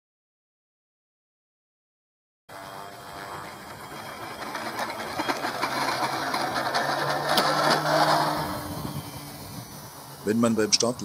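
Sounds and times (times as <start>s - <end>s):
electric motor propeller whirring: 2.5s - 11.0s.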